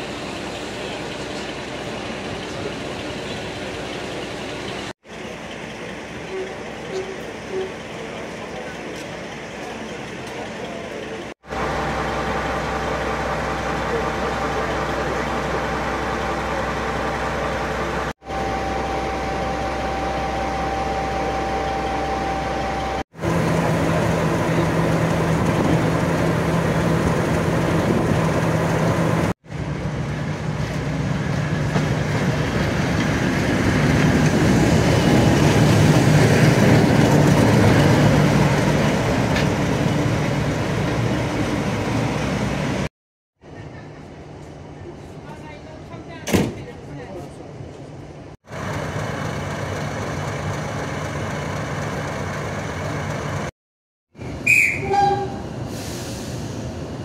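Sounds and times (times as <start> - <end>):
diesel locomotive engine idling: 0.0 - 53.5.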